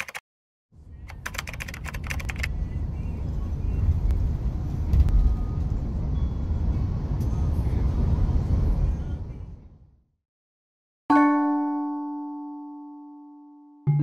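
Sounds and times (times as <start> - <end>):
keyboard typing clicks: 0.0 - 0.2, 1.1 - 2.5
bus road rumble: 2.2 - 10.1.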